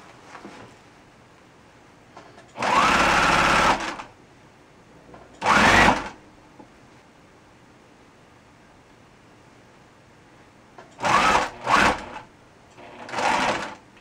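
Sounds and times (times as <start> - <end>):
electric sewing machine stitching: 2.6 - 4.1, 5.4 - 6.2, 11.0 - 13.8.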